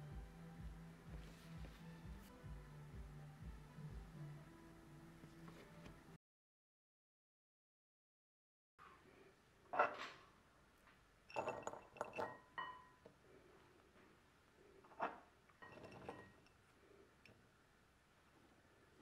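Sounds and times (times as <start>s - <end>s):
kitchenware clinking: 11.3s - 13.0s, 14.9s - 16.6s.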